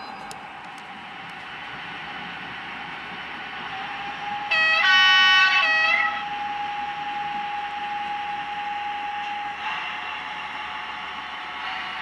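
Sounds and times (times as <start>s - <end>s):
model train running sound whine: 0.0s - 12.0s
model train horn through small speaker: 4.4s - 12.0s.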